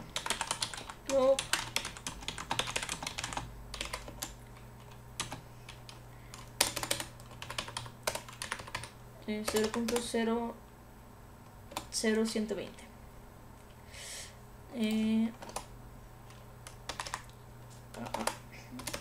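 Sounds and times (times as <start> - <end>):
typing on a keyboard: 0.2 - 10.1, 14.9 - 15.7, 16.3 - 19.0.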